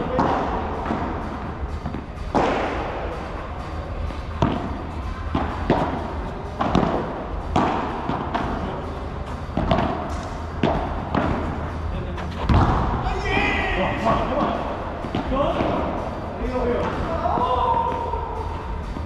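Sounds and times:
ball bouncing off court and walls: 0.0 - 2.9, 4.3 - 11.6, 12.4 - 13.0, 14.3 - 16.0
rackets hitting ball: 0.0 - 3.4, 4.1 - 13.1, 14.0 - 16.2, 16.8 - 18.1.

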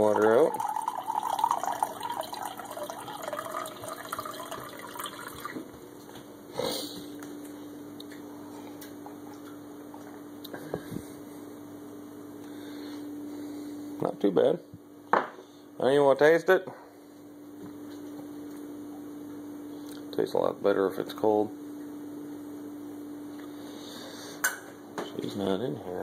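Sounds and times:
water pouring into a mug: 0.0 - 5.6.

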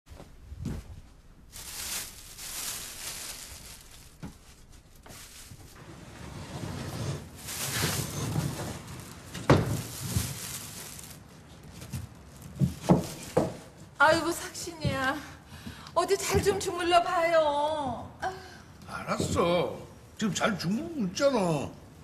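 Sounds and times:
rustling handling noise: 0.1 - 14.4
sliding door scraping: 5.8 - 9.5.

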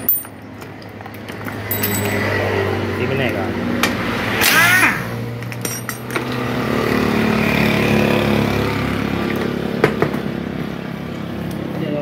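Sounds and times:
light metal clinks: 1.6 - 2.3.

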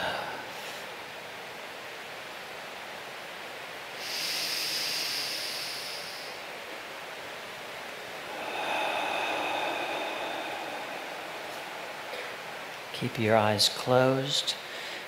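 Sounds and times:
breathy exhale through mouth: 4.0 - 6.7, 8.1 - 12.9
inhale through nose: 4.0 - 6.7, 8.1 - 12.9.

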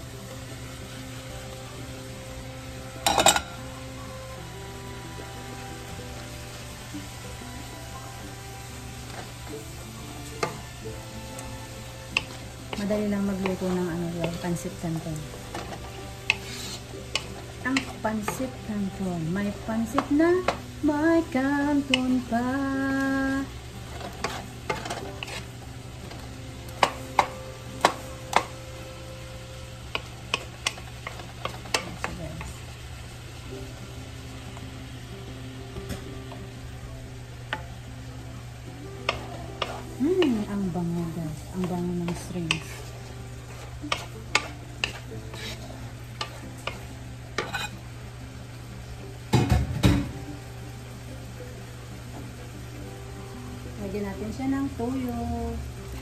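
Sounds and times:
quiet frying sizzle: 0.0 - 56.0
wooden spatula scraping wok: 10.2 - 18.7, 23.2 - 28.5, 29.9 - 32.6, 39.0 - 47.9
spatula tapping pan: 10.3 - 14.7, 15.4 - 18.5, 19.5 - 20.7, 21.8 - 22.3, 23.9 - 28.6, 29.8 - 32.5, 37.5 - 37.7, 39.0 - 40.6, 41.4 - 47.7.

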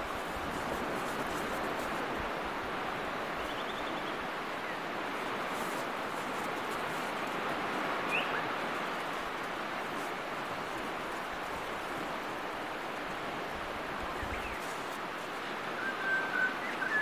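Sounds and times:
surf washing on a beach: 0.0 - 17.0
short level whistling call: 15.8 - 17.0.

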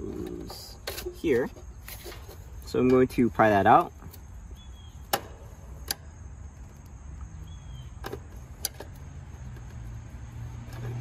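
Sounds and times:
sharp metallic clicks: 5.0 - 9.9.

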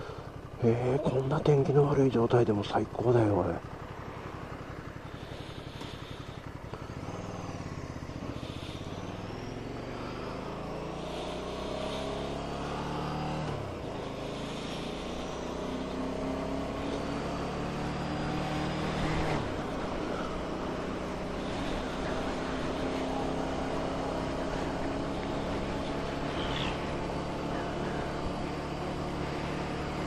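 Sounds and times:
motorcycle accelerating: 0.0 - 30.0.

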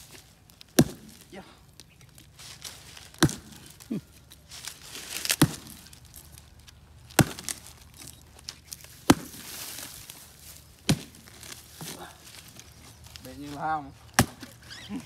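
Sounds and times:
wood fibres crackling: 0.0 - 15.0
hatchet chopping wood: 0.6 - 1.3, 3.1 - 3.7, 5.2 - 6.0, 7.1 - 8.1, 9.0 - 9.6, 10.8 - 12.0, 14.1 - 14.6.

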